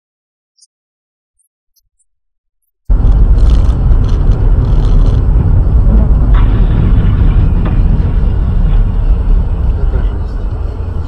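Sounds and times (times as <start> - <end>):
road and engine rumble in car: 2.9 - 11.0.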